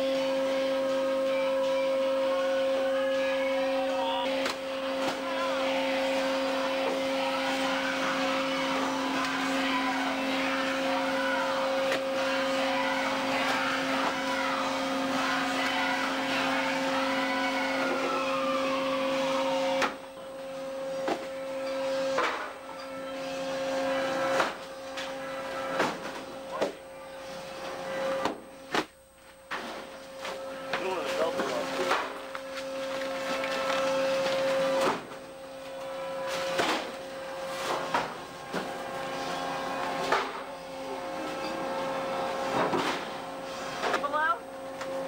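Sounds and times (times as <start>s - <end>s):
machinery drone: 0.0s - 28.7s, 29.5s - 45.0s.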